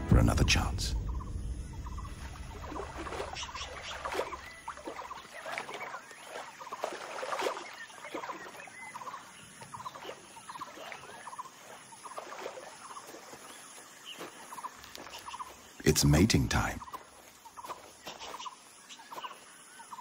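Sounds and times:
deer splashing through water: 2.2s - 15.4s.

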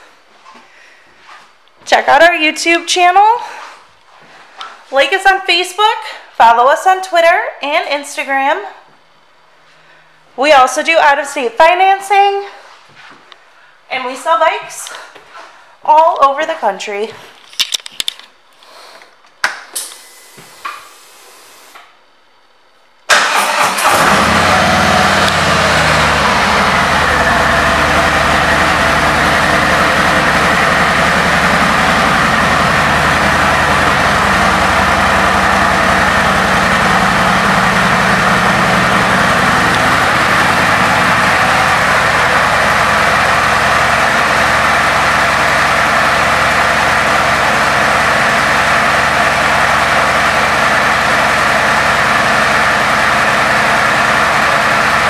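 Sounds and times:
motorcycle engine idling: 25.3s - 54.8s.

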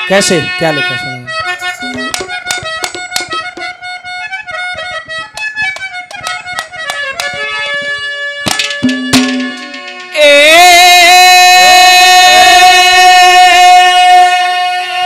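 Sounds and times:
harmonium melody: 0.0s - 15.0s
drum strokes: 1.6s - 3.8s, 8.5s - 10.6s.

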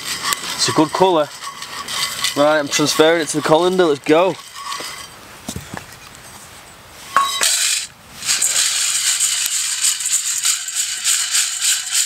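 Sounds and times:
beans rattling against metal: 0.0s - 5.2s, 7.2s - 12.0s
beans clattering into colander: 7.4s - 12.0s.

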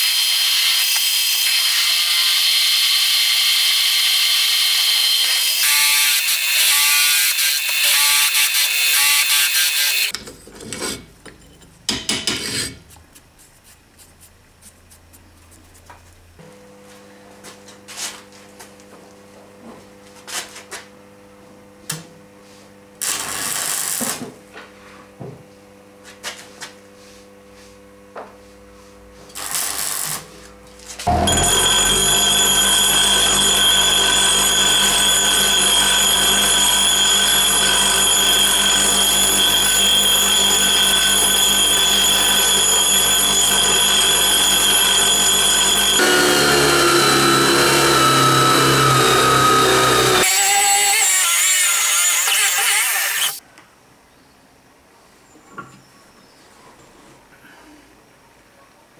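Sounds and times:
angle grinder whining: 0.0s - 10.1s, 31.0s - 53.4s
electric drill boring into wood: 0.0s - 10.1s, 31.1s - 53.4s.

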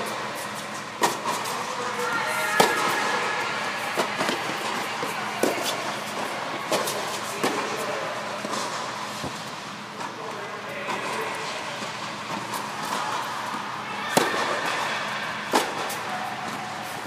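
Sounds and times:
tennis ball bouncing on hard court: 2.4s - 3.2s, 4.0s - 9.4s, 12.3s - 16.6s
tennis ball struck by rackets: 2.6s - 3.2s, 4.0s - 9.4s, 12.3s - 16.6s.

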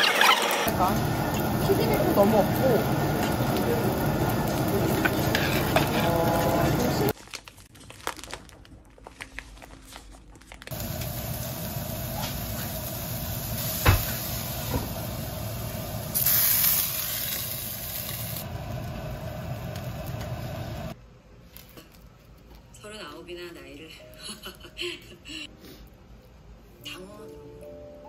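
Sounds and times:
rice sizzling in a frying pan: 0.7s - 7.2s, 10.7s - 21.0s
plastic pouch rustling: 7.1s - 10.7s.

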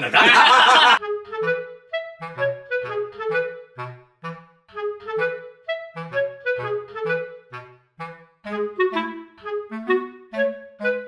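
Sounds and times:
bouncy melody over bass line: 1.0s - 11.0s.

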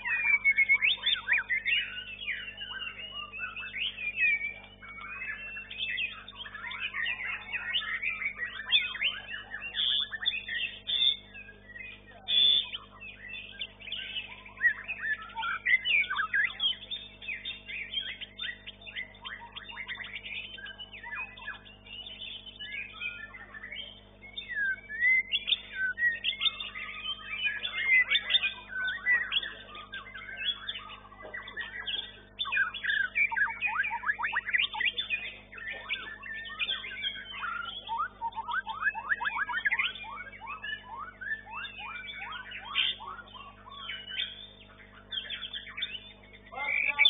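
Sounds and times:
bird singing whistles and trills: 0.0s - 47.0s
low electrical hum: 0.0s - 47.0s.

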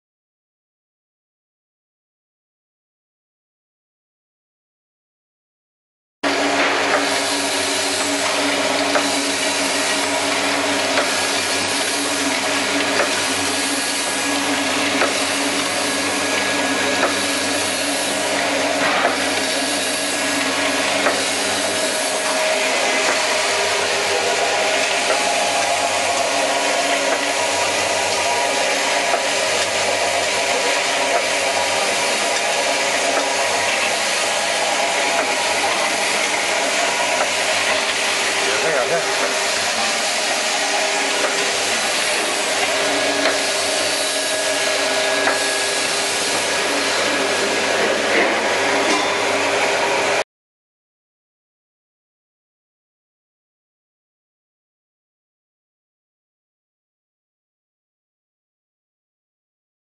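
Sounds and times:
machine motor hum and whir: 6.2s - 50.2s.

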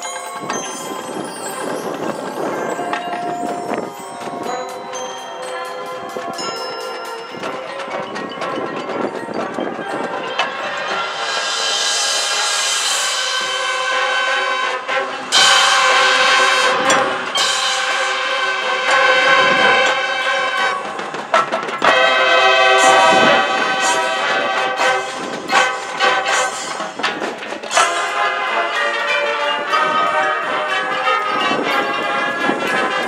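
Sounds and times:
drums and percussion: 0.0s - 33.0s
marching band brass chords: 10.3s - 33.0s.

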